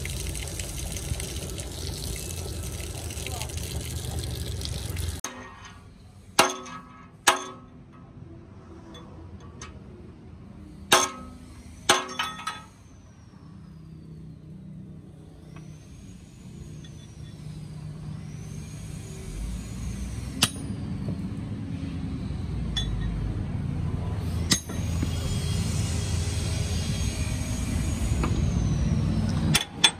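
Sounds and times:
low engine rumble: 0.0 - 6.2
hammer striking metal: 5.2 - 8.1, 10.9 - 12.7, 24.5 - 24.9.

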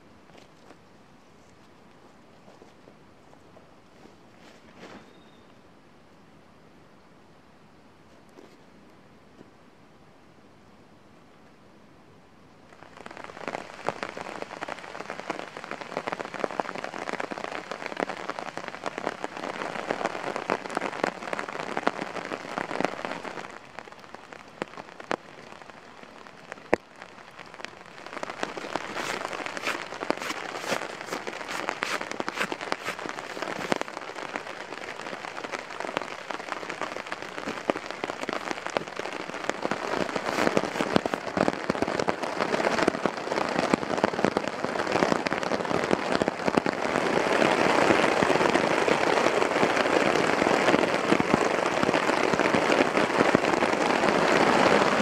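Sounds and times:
rain falling: 12.5 - 55.0.

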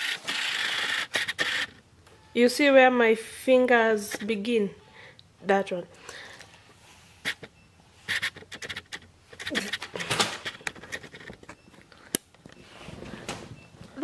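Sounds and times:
handheld camera rustling: 8.1 - 13.2.

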